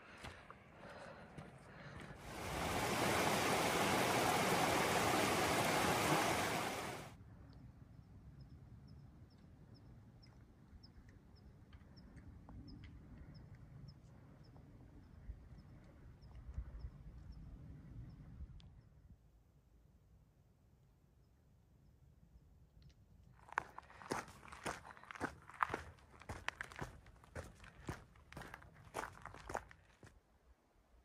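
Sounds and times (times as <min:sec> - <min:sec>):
rushing water: 0:02.2 - 0:07.1.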